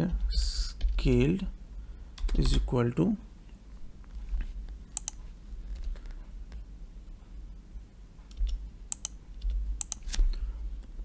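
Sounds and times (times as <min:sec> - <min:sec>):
low steady hum: 0:00.0 - 0:11.0
computer keyboard keystrokes: 0:02.2 - 0:02.6, 0:04.9 - 0:06.1, 0:08.3 - 0:10.2.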